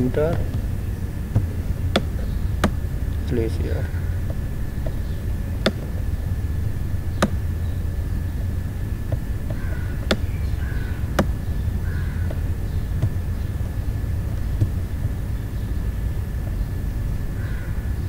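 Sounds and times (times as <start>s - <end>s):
faint high whine: 0.0s - 18.0s
low background hum: 0.0s - 18.0s.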